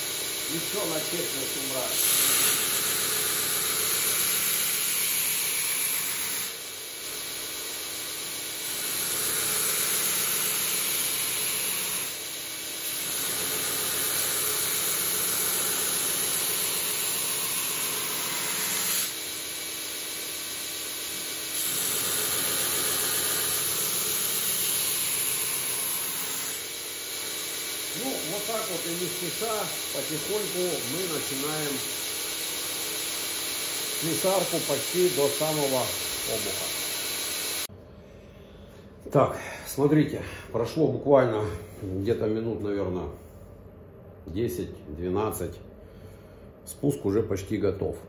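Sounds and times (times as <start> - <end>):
belt grinder grinding hiss: 0.0 - 37.7
motor hum: 0.0 - 37.7.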